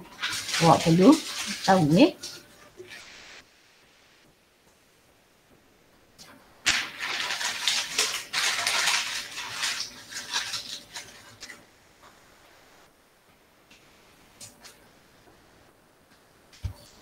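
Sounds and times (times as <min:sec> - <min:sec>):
crinkling crackling rustle: 0:00.0 - 0:03.1, 0:06.2 - 0:12.9.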